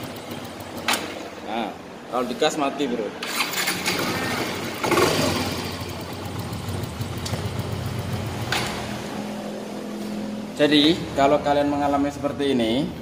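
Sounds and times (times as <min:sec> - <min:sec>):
scooter engine sputtering: 0:00.0 - 0:01.3, 0:03.2 - 0:09.3.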